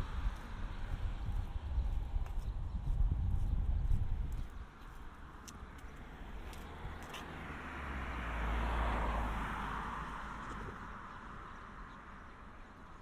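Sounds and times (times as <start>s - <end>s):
vehicle passing by: 4.6s - 12.3s.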